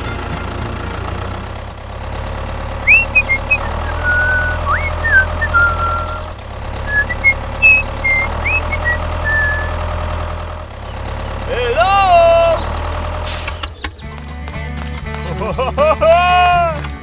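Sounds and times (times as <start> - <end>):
truck engine idling: 0.0 - 17.0
high whistled chirps: 2.8 - 9.8.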